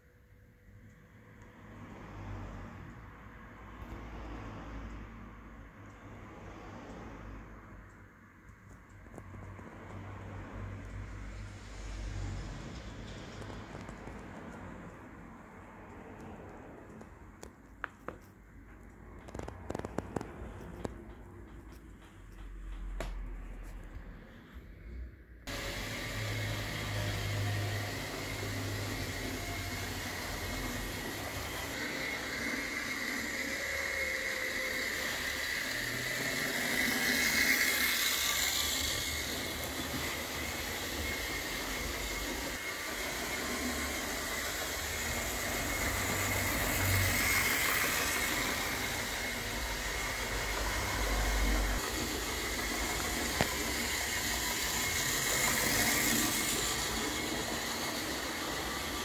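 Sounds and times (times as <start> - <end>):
wheels rumbling on track: 18.6 - 24.2, 25.5 - 59.0
model train motor whine: 25.5 - 59.0.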